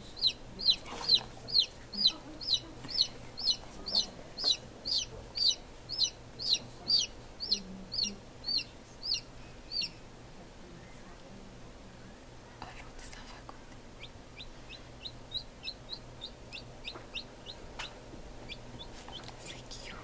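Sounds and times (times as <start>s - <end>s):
chick peeping: 0.0s - 10.0s, 14.0s - 19.5s.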